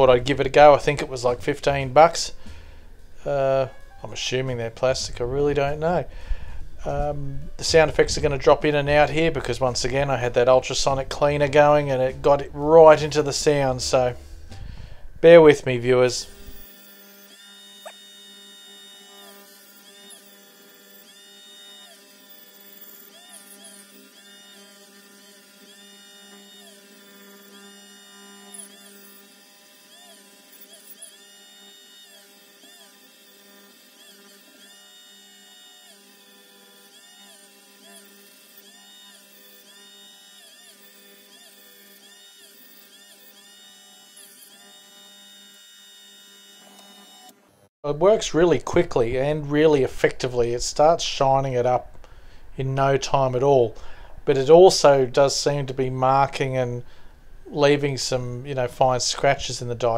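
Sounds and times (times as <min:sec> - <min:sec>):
background hum: 0:00.0 - 0:16.7, 0:48.0 - 0:59.9
rotary tool running: 0:16.2 - 0:47.7.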